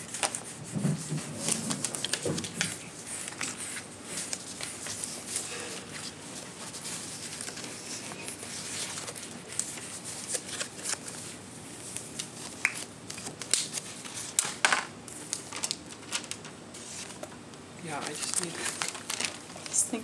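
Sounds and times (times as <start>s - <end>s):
paper rustling and sliding: 0.0s - 17.3s, 17.9s - 19.8s
paper snaps and taps: 12.2s - 16.4s.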